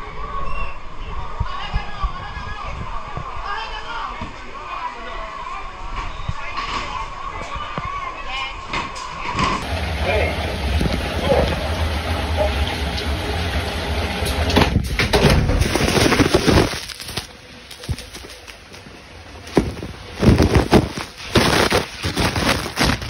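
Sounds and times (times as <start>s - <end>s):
steady noisy hum: 9.1s - 23.0s.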